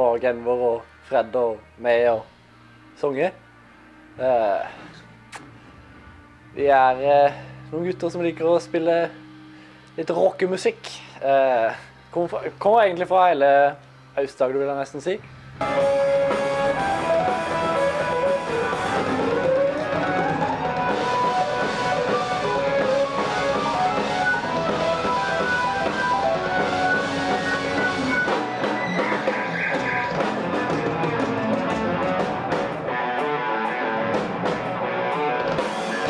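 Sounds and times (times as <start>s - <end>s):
gliding note: 4.0s - 9.7s
rock band playing: 15.6s - 36.0s.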